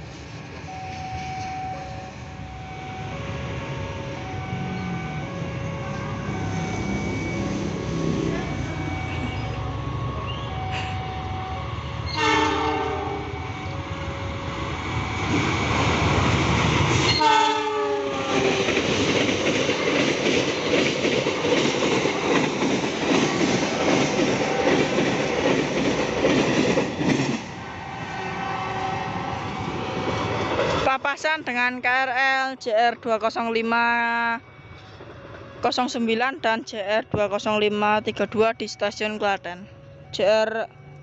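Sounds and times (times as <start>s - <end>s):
train rushing and rail clatter: 0.0s - 39.0s
train horn: 12.1s - 14.2s, 17.1s - 18.8s.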